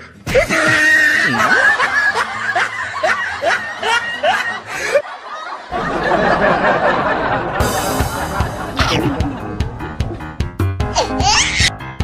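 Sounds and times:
person laughing: 0:00.4 - 0:05.0, 0:07.7 - 0:09.4.

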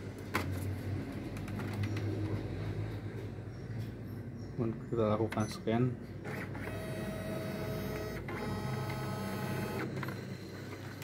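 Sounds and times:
scanner motor whirring: 0:06.3 - 0:10.8.

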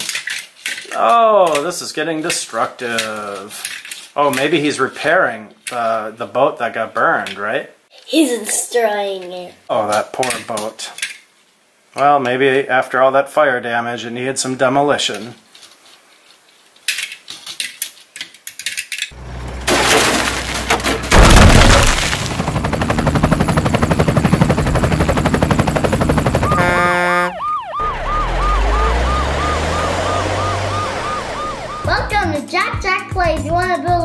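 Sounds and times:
electronic police siren yelping: 0:26.4 - 0:32.3.

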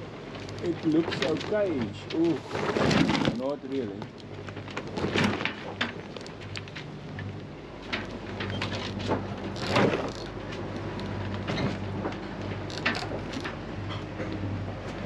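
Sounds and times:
sails and rigging knocking: 0:00.0 - 0:15.0
steady low hum: 0:00.0 - 0:15.0
wind: 0:00.0 - 0:15.0.

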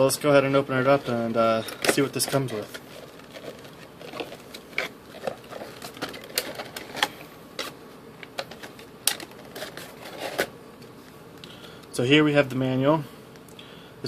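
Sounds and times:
plastic packaging clicks and crinkles: 0:01.5 - 0:10.5.

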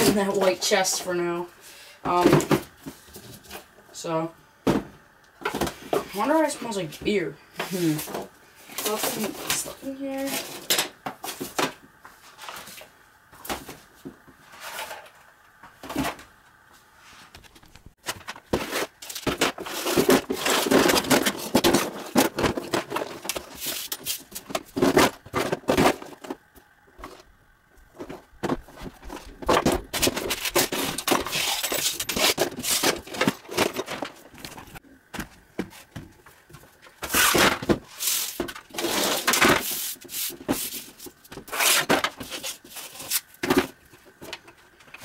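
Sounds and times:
small objects clattering into plastic tub: 0:18.0 - 0:26.4.

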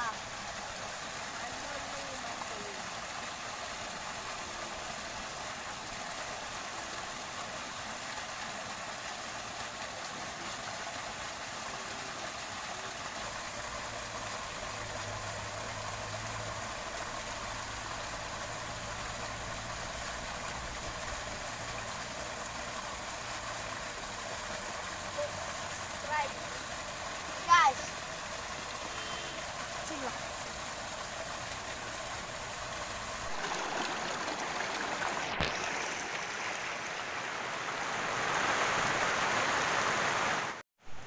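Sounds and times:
waterfall pouring into pool: 0:00.0 - 0:41.0.

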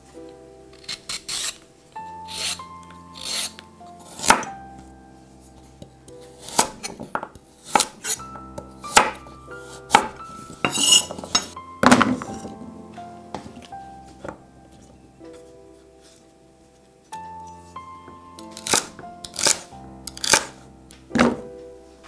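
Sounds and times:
soft background music: 0:00.0 - 0:22.0
knife cutting on wooden board: 0:03.2 - 0:04.5, 0:06.4 - 0:07.0, 0:07.6 - 0:08.2, 0:18.5 - 0:20.6.

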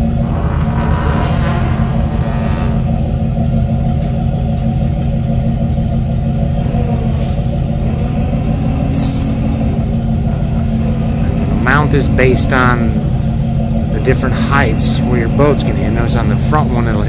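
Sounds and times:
boat engines rumbling: 0:00.0 - 0:17.0
high chirping squeak: 0:08.6 - 0:09.8.

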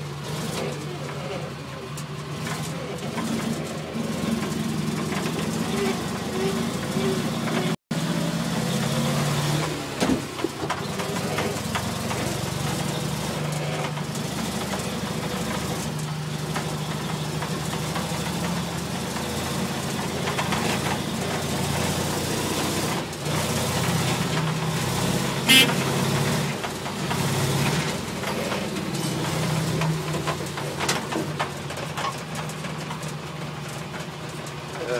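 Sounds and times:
small engine running: 0:02.3 - 0:31.7
short sharp sound: 0:25.5 - 0:25.8.

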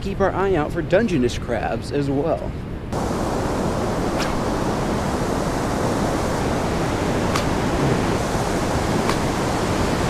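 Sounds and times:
ocean surf washing in: 0:02.9 - 0:10.0.

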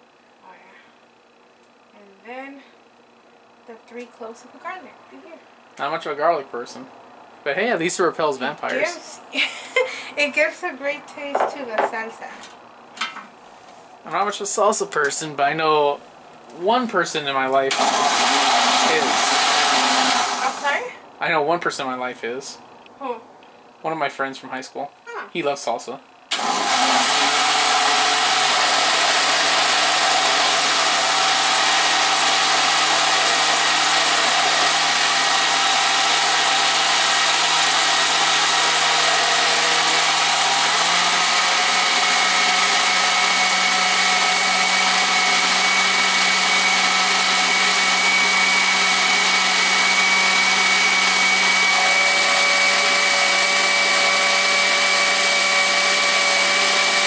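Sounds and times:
blender running: 0:17.7 - 0:20.9, 0:26.3 - 0:57.0.

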